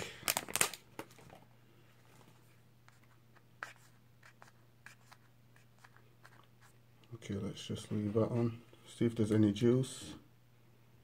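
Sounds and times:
plastic film crinkling: 0:00.0 - 0:01.4.

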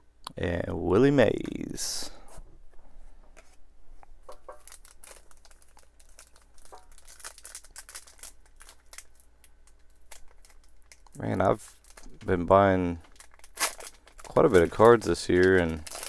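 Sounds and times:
plastic wrapper crinkling and tearing: 0:04.3 - 0:16.0.

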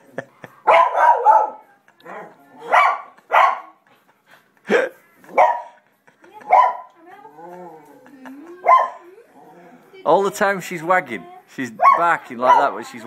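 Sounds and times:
dog barking: 0:00.6 - 0:03.8, 0:05.3 - 0:05.8, 0:06.5 - 0:06.9, 0:08.6 - 0:09.0, 0:11.8 - 0:12.8.

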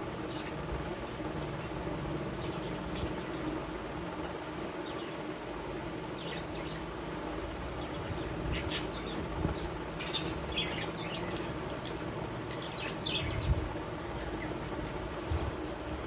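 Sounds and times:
low background hum: 0:00.0 - 0:16.0
budgerigars chirping: 0:07.8 - 0:13.5.

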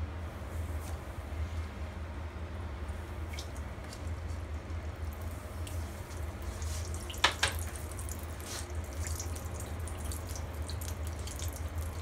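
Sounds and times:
food deep-frying in oil: 0:03.2 - 0:12.0.

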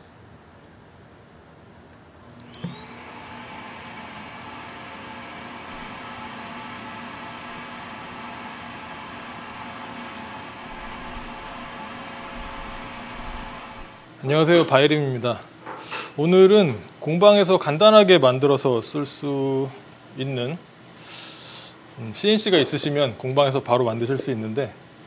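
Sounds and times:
vacuum motor whining: 0:02.3 - 0:14.2.

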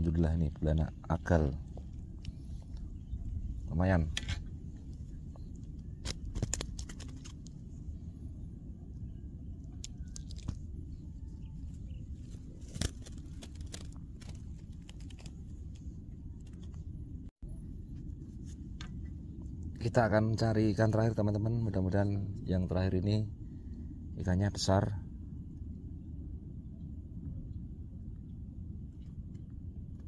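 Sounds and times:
wind rumbling on microphone: 0:00.0 - 0:30.0
hands handling clicks and rustles: 0:04.1 - 0:07.6, 0:12.2 - 0:16.9.

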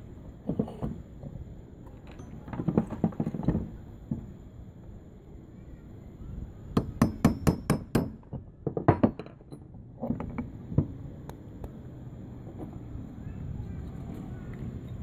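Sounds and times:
knocks on metal parts: 0:06.8 - 0:10.9.

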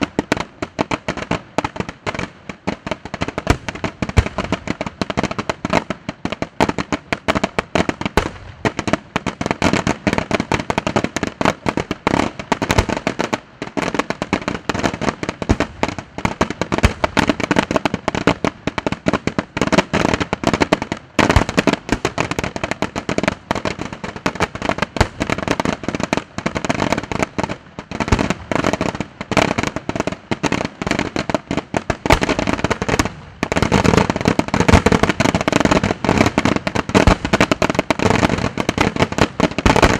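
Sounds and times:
fireworks bursting: 0:00.0 - 0:39.9.

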